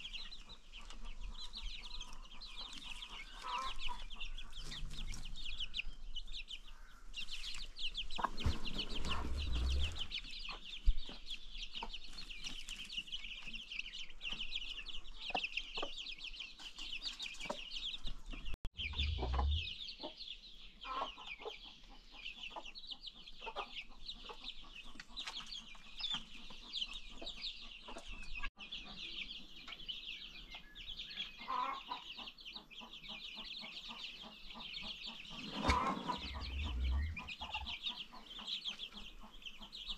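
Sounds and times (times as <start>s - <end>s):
baby chicks peeping: 0.0s - 39.9s
low bumps: 18.7s - 19.7s, 35.4s - 37.7s.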